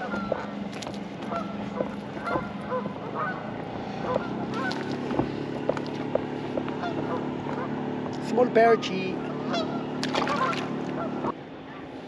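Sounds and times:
geese honking: 0.0 - 0.6, 1.2 - 4.9, 6.7 - 7.8, 9.2 - 11.4
steady low hum: 0.0 - 12.0.

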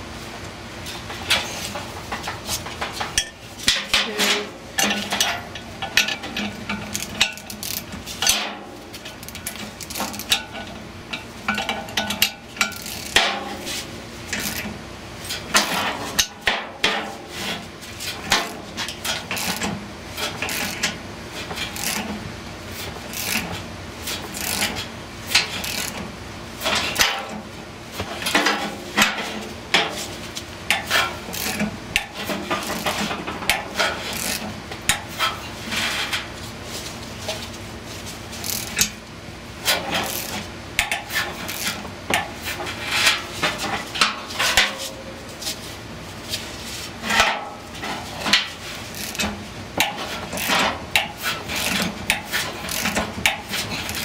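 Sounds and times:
metal tools clanking: 1.2 - 13.5
ratchet wrench clicking: 23.1 - 23.4, 24.4 - 24.6, 25.6 - 26.0, 34.2 - 34.4, 38.4 - 38.9, 40.1 - 40.3, 48.9 - 49.2, 52.7 - 53.0.

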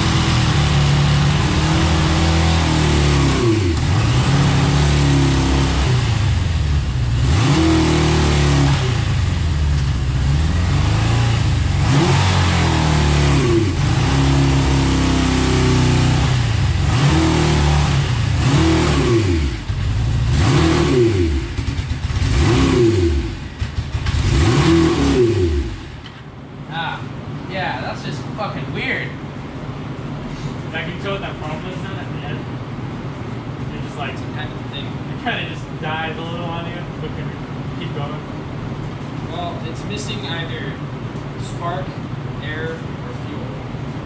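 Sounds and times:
motorcycle engine revving: 0.0 - 26.2.

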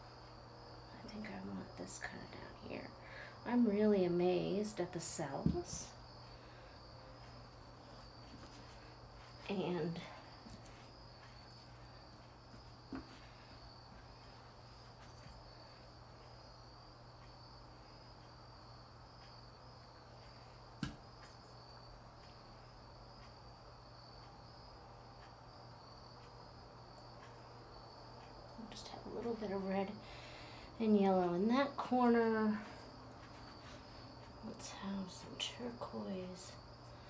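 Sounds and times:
crickets chirping: 0.0 - 37.0
low room hum: 0.0 - 37.0
small knocks: 20.8 - 21.4.

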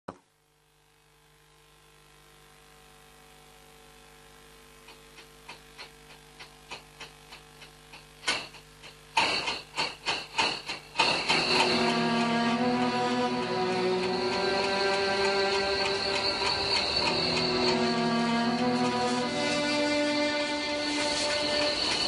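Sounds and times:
machine humming: 0.9 - 22.0
regular mechanical clicking: 4.8 - 17.8
rhythmic mechanical clattering: 4.8 - 22.0.

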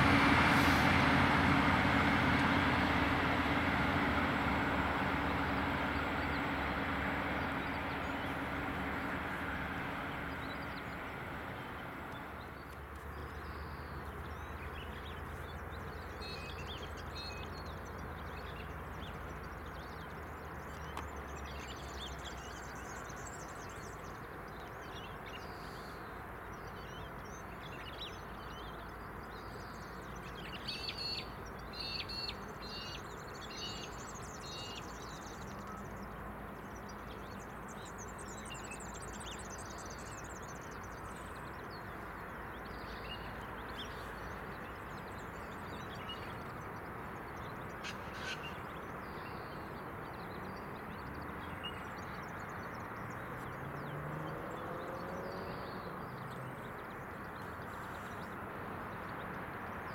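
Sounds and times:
diesel train engine departing: 0.0 - 19.9
diesel locomotive idling: 0.0 - 20.4
birds chirping: 0.0 - 59.9.

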